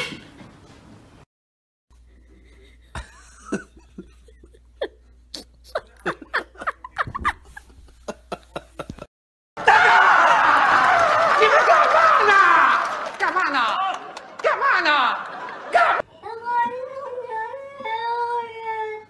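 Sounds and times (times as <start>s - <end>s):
person giggling: 2.5s - 9.1s.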